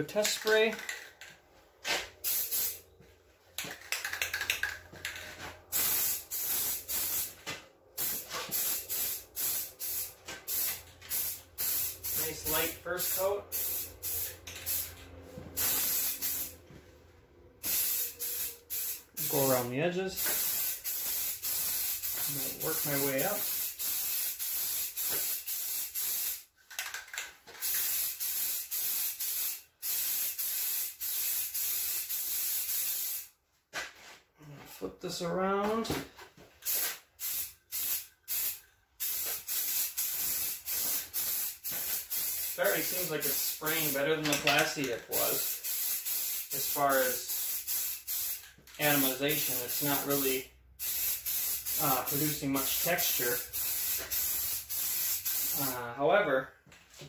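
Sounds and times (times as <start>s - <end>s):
aerosol spray can hissing: 2.2s - 2.8s, 5.7s - 7.4s, 8.0s - 14.9s, 15.6s - 16.5s, 17.6s - 19.3s, 20.2s - 26.4s, 27.6s - 33.3s, 36.7s - 44.0s, 45.1s - 55.7s.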